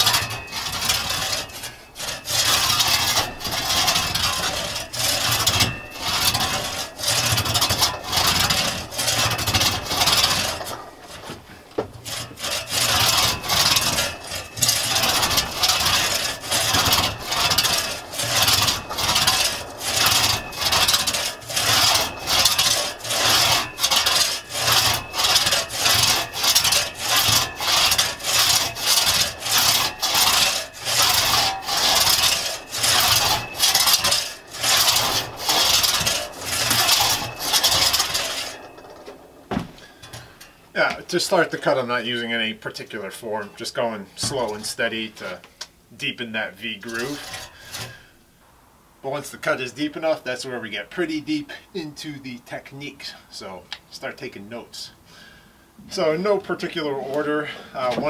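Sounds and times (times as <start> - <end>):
crosscut saw rasping through log: 0.0 - 40.4, 46.1 - 48.1.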